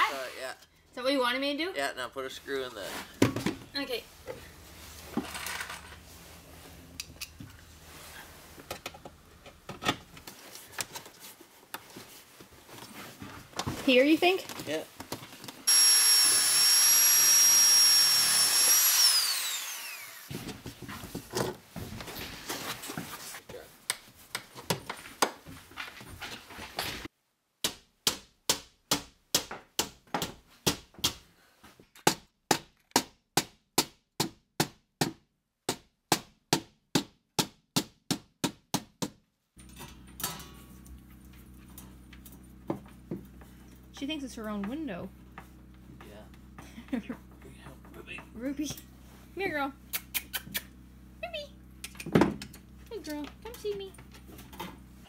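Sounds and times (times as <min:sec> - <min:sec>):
drill whining: 0:15.7 - 0:20.3.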